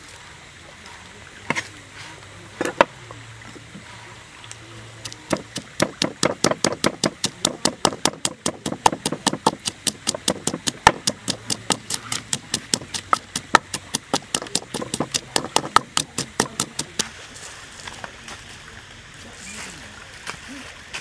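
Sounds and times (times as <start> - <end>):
pestle pounding in wooden mortar: 5.0 - 17.1.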